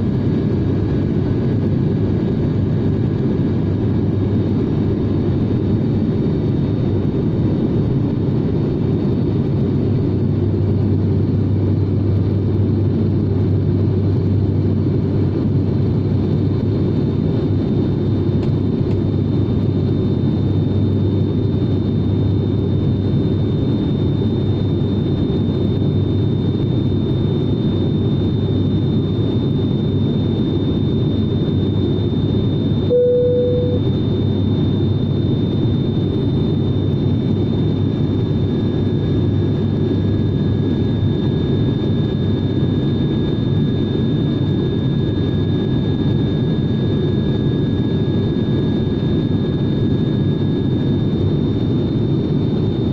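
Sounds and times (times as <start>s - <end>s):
short tone: 32.8s - 34.1s
thin high whine: 32.8s - 34.3s.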